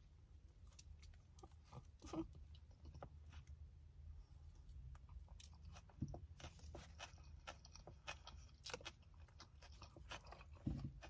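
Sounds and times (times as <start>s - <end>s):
chewing sandwich crunches: 5.0s - 11.0s.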